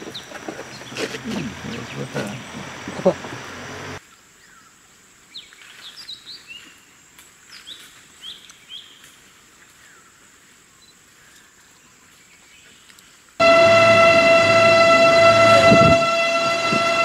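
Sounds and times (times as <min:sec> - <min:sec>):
small birds chirping: 0:00.0 - 0:13.4
high-pitched tone: 0:13.4 - 0:17.0
loud horn blaring: 0:13.4 - 0:17.0.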